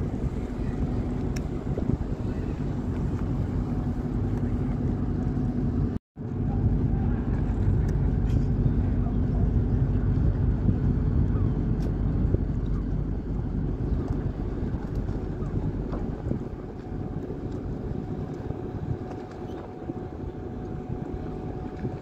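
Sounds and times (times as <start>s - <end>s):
ship engines rumbling: 0.0s - 22.0s
wind on microphone: 0.0s - 22.0s.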